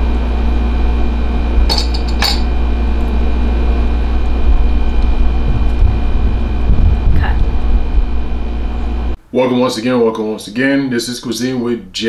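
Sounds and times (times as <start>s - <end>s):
steady low hum: 0.0s - 9.3s
ladle clinking against pot: 1.7s - 2.5s.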